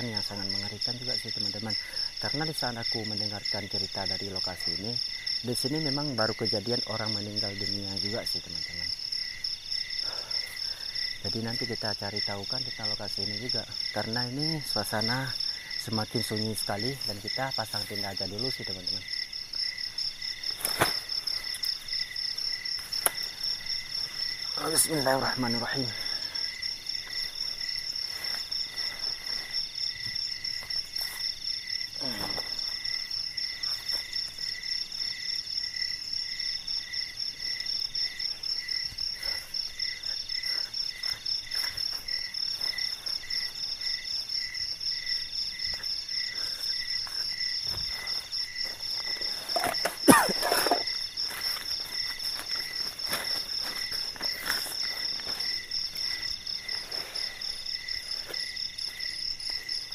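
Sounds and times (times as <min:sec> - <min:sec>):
night insects chirring: 0:00.0 - 0:59.9
rustles and knocks of tent: 0:47.6 - 0:57.4.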